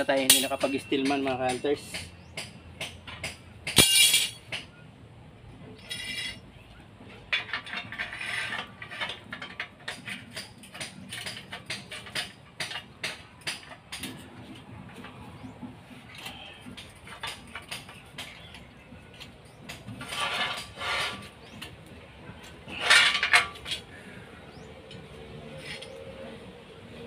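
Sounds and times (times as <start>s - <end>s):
ringing metal clank: 0.2s - 2.0s, 3.2s - 4.7s
metallic clicks and rattles: 7.3s - 14.3s.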